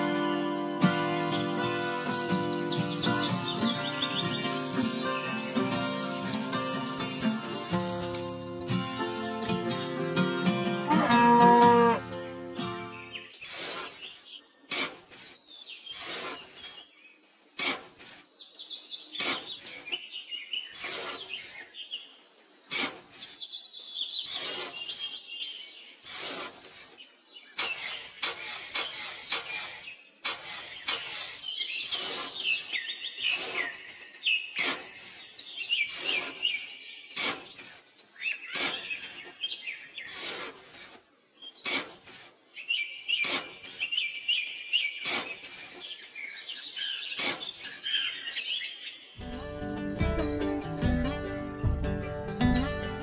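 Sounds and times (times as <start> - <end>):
background music: 0.0 - 13.1, 49.2 - 53.0
birds chirping: 0.0 - 53.0
trowel digging into damp sand: 13.4 - 17.0, 17.6 - 18.3, 19.2 - 20.0, 20.7 - 21.7, 22.7 - 23.5, 24.2 - 25.2, 26.0 - 33.9, 34.6 - 35.2, 35.8 - 42.5, 43.1 - 44.1, 44.9 - 46.0, 47.0 - 47.8.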